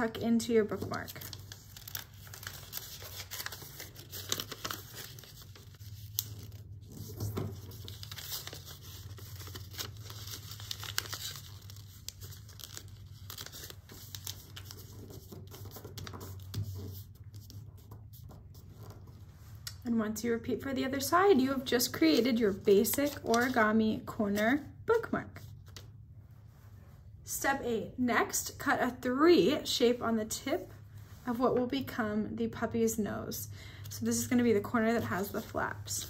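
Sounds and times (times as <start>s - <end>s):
paper rustling and crinkling: 0.6s - 19.6s, 21.6s - 23.7s, 35.0s - 36.0s.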